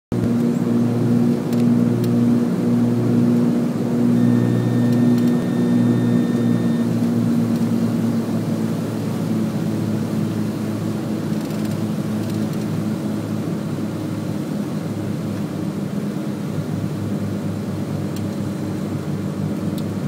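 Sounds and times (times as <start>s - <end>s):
small airplane engine droning: 0.1s - 20.0s
faint high steady tone: 4.1s - 6.9s.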